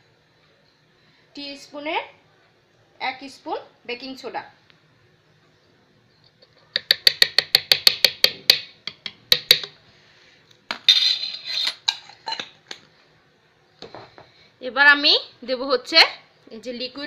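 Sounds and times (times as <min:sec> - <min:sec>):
spoon scraping clatter: 0:10.9 - 0:12.6.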